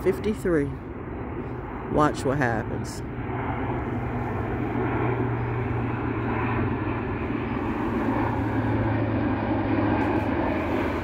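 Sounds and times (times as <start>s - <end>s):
airplane engine droning: 0.0s - 11.0s.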